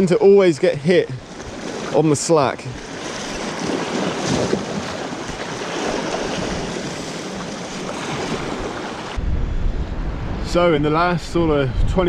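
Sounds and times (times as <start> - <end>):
surf washing over rocks: 0.0 - 9.2
wind on microphone: 2.8 - 12.0.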